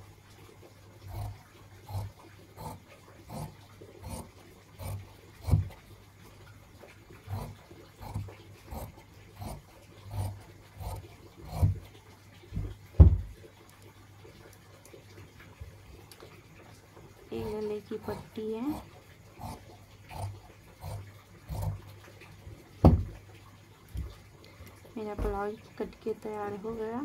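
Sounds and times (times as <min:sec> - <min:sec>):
scissors snipping fabric: 0:07.3 - 0:11.8, 0:19.4 - 0:21.8.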